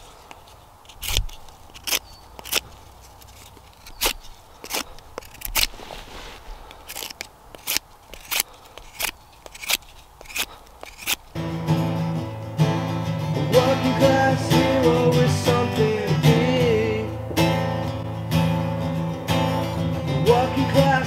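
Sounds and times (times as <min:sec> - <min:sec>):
knife scraping wood: 0:00.0 - 0:11.4.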